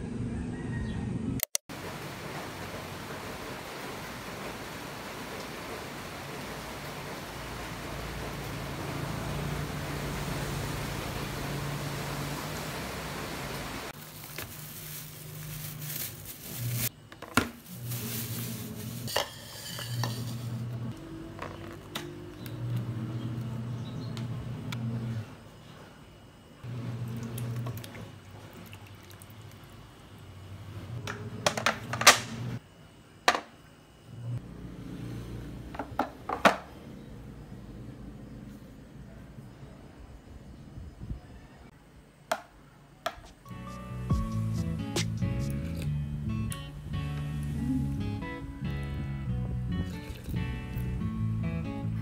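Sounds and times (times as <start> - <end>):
outdoor noise: 0.0 - 52.0
plastic bag rustling: 14.0 - 20.6.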